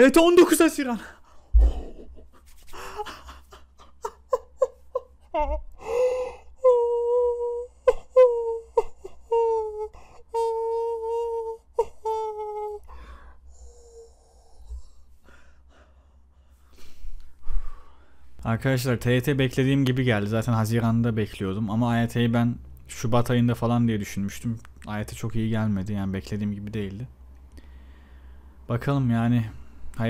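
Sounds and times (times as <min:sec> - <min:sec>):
breathy gasps: 0:05.8 - 0:06.5, 0:12.9 - 0:18.2, 0:27.5 - 0:28.6.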